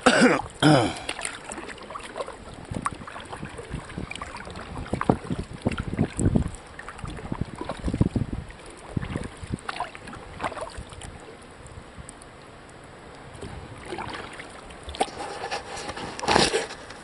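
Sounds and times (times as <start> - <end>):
paddle splashing in water: 0.0 - 17.0
wind on microphone: 2.3 - 12.2, 13.3 - 17.0.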